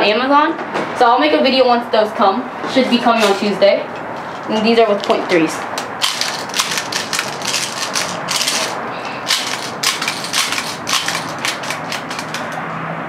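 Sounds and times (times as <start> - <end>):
plastic bbs clicking into magazine: 5.8 - 12.6.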